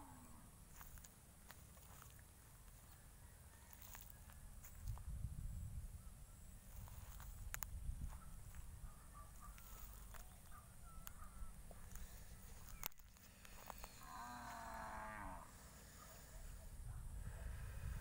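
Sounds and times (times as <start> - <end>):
cow mooing: 0.0 - 0.4, 14.0 - 15.5.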